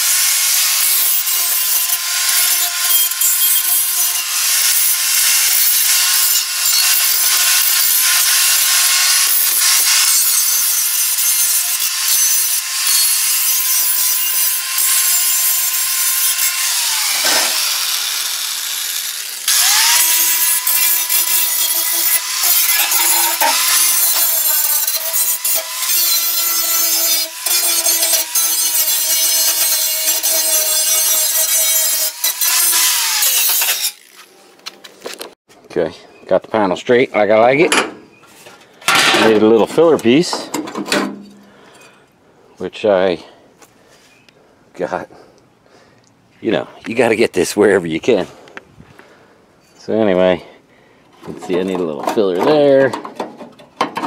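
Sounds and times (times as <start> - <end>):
angle grinder grinding metal: 0.0 - 34.4.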